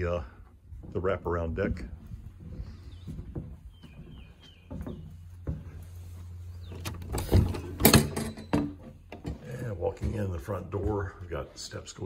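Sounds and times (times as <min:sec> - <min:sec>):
footsteps on wooden porch: 0:00.0 - 0:12.0
bird chirping: 0:02.4 - 0:09.5
door unlatched and opened: 0:06.8 - 0:08.8.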